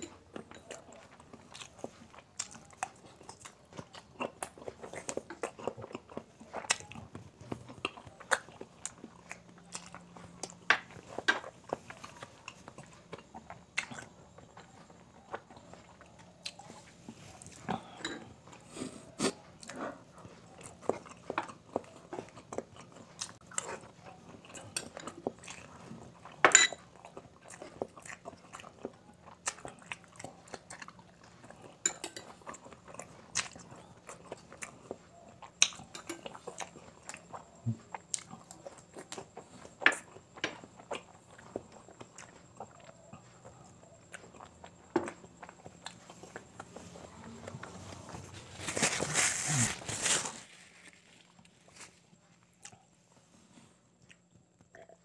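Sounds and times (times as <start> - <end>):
close-up chewing and crunching: 0.0 - 55.0.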